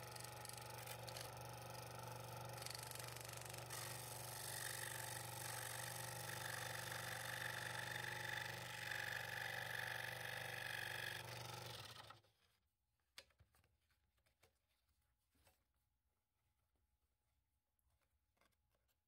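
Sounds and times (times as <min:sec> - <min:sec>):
scroll saw cutting wood: 0:00.0 - 0:12.2.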